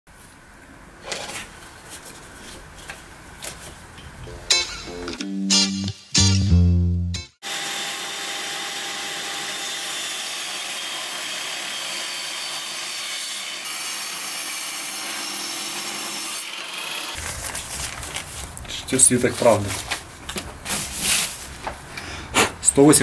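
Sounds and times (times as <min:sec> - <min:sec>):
table saw cutting wood: 0:07.4 - 0:17.2.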